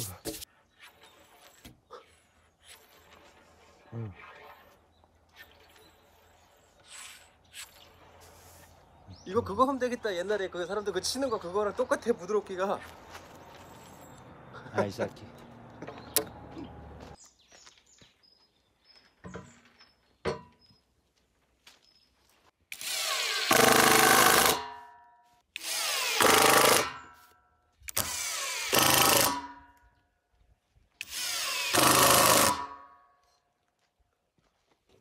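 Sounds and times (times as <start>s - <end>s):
impact driver hammering screws: 22.7s - 24.9s, 25.6s - 27.1s, 27.9s - 29.6s, 31.0s - 32.8s.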